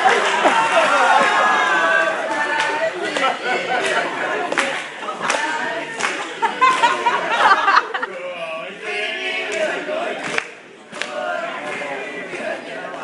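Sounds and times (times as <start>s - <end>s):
group of teenagers singing: 0.0s - 13.0s
hand claps: 2.3s - 7.0s, 9.5s - 13.0s.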